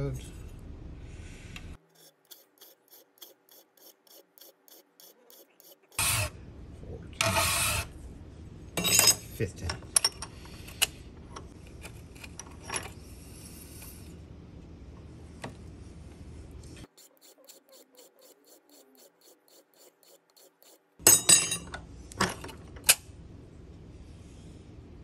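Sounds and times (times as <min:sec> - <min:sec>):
hand file rasping on metal: 0:01.9 - 0:06.3, 0:16.9 - 0:21.0.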